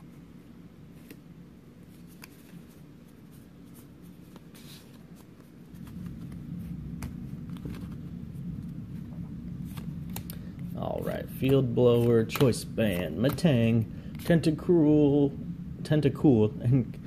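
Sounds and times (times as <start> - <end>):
low steady hum: 0.0 - 17.0
cards swishing: 0.9 - 8.8, 9.6 - 14.6
cards clicking: 1.9 - 2.8, 9.7 - 10.4, 11.4 - 14.5.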